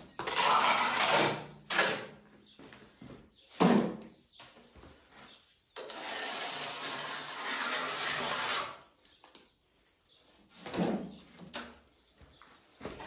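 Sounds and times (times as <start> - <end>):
trowel scraping mortar: 0.0 - 2.1, 5.8 - 9.0.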